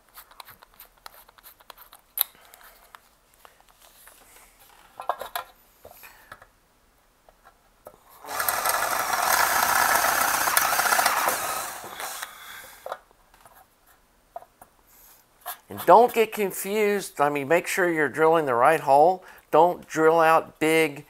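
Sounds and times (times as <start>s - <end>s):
electric drill grinding through metal: 8.2s - 12.4s.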